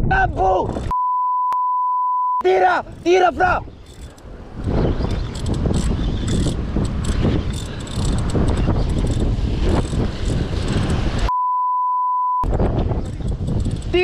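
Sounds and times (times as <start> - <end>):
censor bleep: 0.9 - 2.4, 11.3 - 12.5
wind on microphone: 2.8 - 11.3, 12.4 - 14.0
fishing reel clicking whir: 3.8 - 4.2, 5.2 - 10.4.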